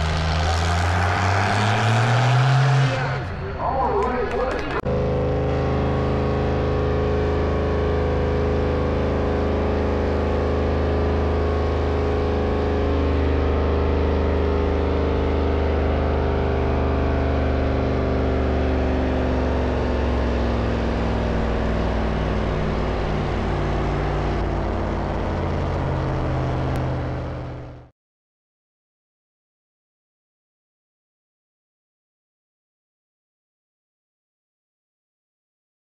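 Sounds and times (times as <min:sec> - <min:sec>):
tractor diesel engine labouring: 0:00.0 - 0:27.9.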